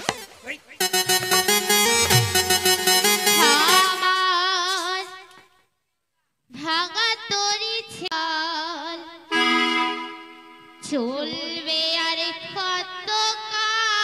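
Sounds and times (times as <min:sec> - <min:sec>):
stage music with vibrato melody: 0:00.8 - 0:04.3, 0:09.3 - 0:10.8.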